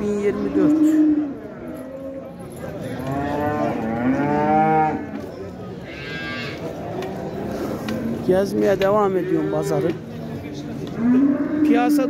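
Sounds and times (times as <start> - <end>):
cattle mooing: 0.1 - 2.1, 11.0 - 12.0.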